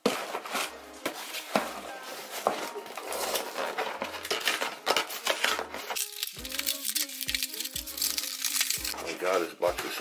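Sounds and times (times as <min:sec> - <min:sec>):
cardboard box scraping and rustling: 0:00.0 - 0:06.0.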